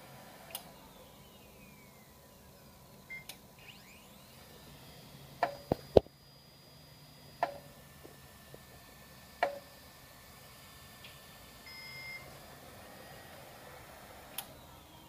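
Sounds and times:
faint beep: 3.0 - 4.3, 11.7 - 12.3.

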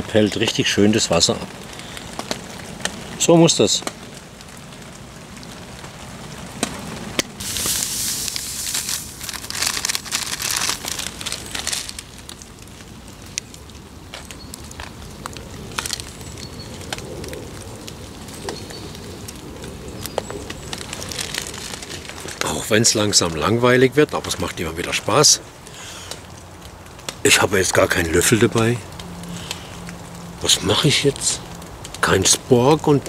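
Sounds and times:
rain falling: 0.0 - 33.0
sharp crackles: 0.0 - 33.0
rushing hiss: 7.4 - 12.1.

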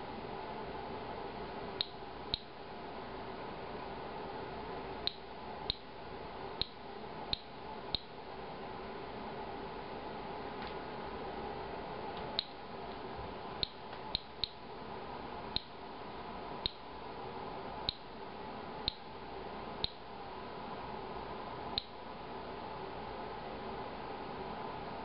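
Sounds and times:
faint steady hum: 0.0 - 25.0
geiger counter clicking: 1.8 - 2.5, 5.0 - 5.9, 6.6 - 8.1, 13.6 - 14.6, 16.6 - 16.9, 17.9 - 18.1, 18.8 - 19.0.

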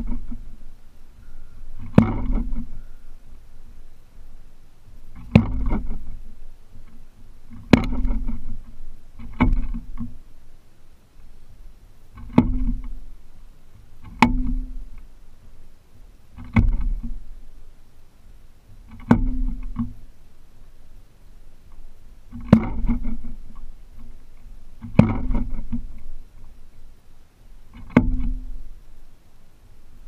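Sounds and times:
bird beating fish on wooden post: 0.0 - 3.9, 5.0 - 10.2, 12.1 - 13.2, 13.8 - 15.1, 16.3 - 17.3, 18.8 - 20.1, 21.7 - 26.6, 27.7 - 28.8.

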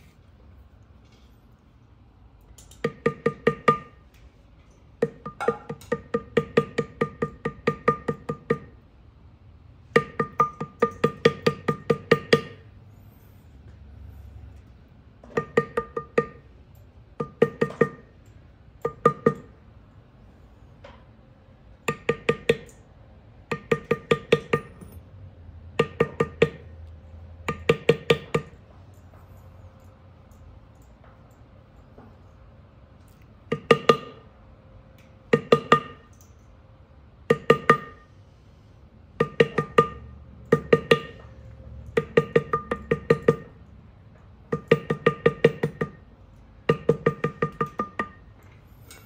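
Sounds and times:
mallet tapping metal tool: 2.7 - 4.0, 5.0 - 8.8, 9.8 - 12.7, 15.2 - 16.5, 17.2 - 18.2, 18.8 - 19.5, 21.9 - 22.8, 23.5 - 25.0, 25.8 - 26.7, 27.4 - 28.6, 33.5 - 34.3, 35.3 - 36.1, 37.3 - 38.0, 39.2 - 43.6, 44.5 - 48.3.

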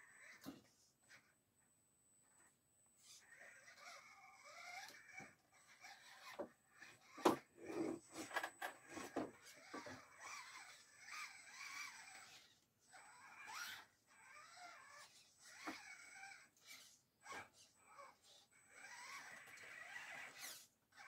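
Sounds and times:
rc car motor whining: 0.0 - 1.4, 2.2 - 21.0.

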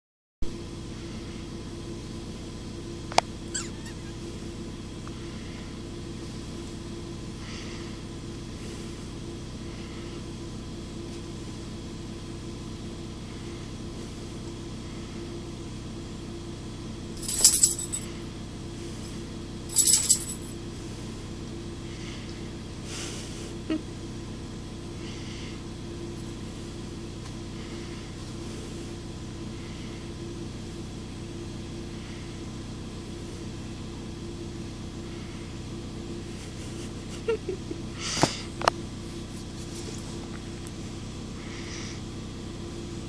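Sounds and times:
steady low hum: 0.5 - 43.0
dog collar tags jingling: 17.2 - 18.1, 19.7 - 20.5.

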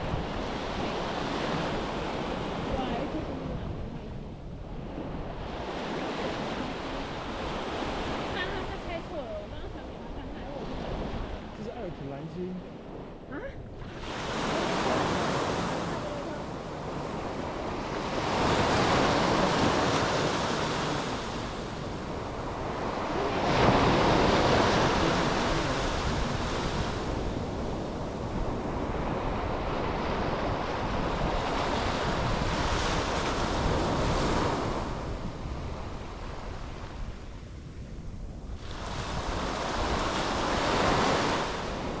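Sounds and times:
sea waves breaking on beach: 0.0 - 42.0
wind rumble on microphone: 0.0 - 42.0.

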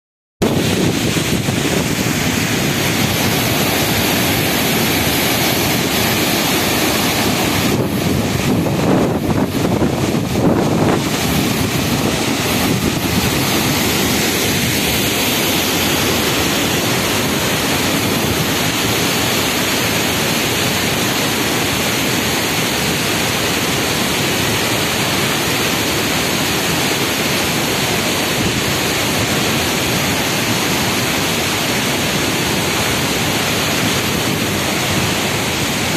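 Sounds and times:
wind on microphone: 0.4 - 23.7
river pouring over boulders: 0.4 - 35.9
waterfall rushing: 0.4 - 35.9.

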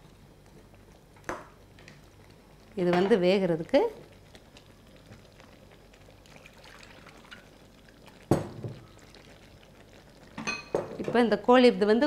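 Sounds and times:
liquid pouring into pan: 4.2 - 10.8.

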